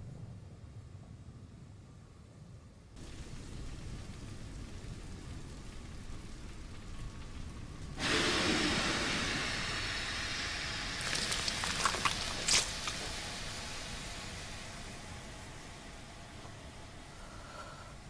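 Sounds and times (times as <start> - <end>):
loud rush of hissing: 8.0 - 15.0
sharp crackles: 11.0 - 13.2.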